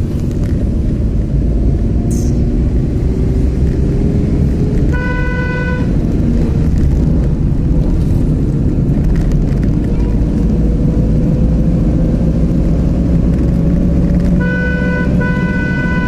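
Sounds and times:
car engine and road rumble: 0.0 - 16.0
car horn toot: 4.9 - 6.0, 14.4 - 16.0.

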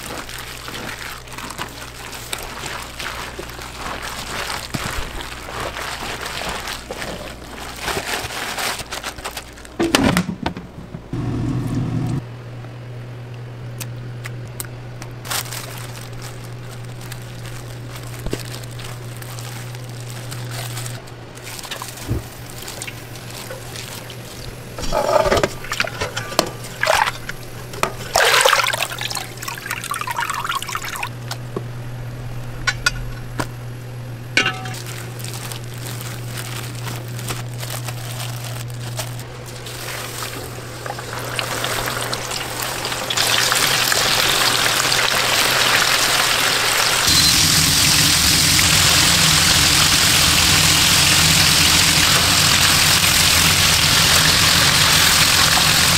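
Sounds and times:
hands squishing food in bowl: 0.0 - 8.3
steady low hum: 0.0 - 43.2.

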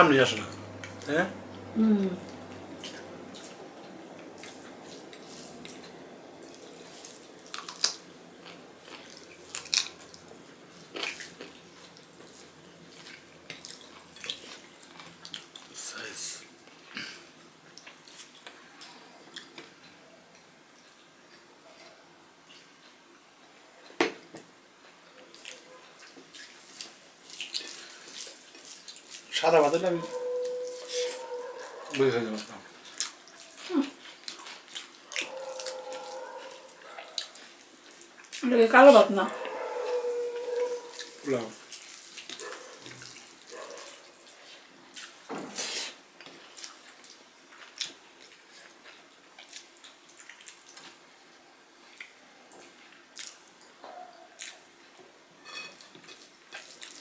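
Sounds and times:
fingers mixing food wet smacks: 2.2 - 15.7, 25.3 - 38.5, 39.4 - 45.3, 46.2 - 51.0.

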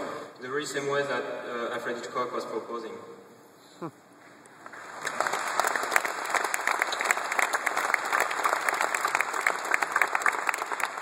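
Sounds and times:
audience applause: 4.6 - 11.0.

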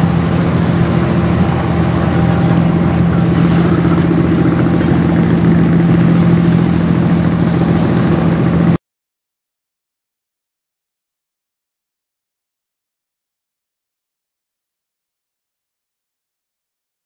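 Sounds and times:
ship diesel engine droning: 0.0 - 8.8
water and wind hiss: 0.0 - 8.8.

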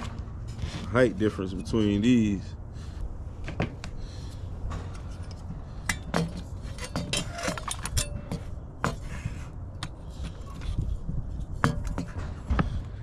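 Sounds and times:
metal brackets clinking and knocking: 4.6 - 9.1, 11.4 - 12.6.

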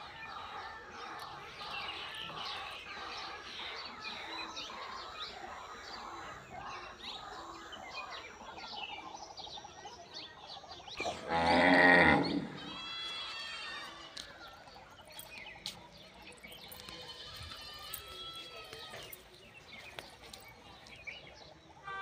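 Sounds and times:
birds chirping: 0.0 - 22.0
loud low animal call: 11.0 - 12.9.

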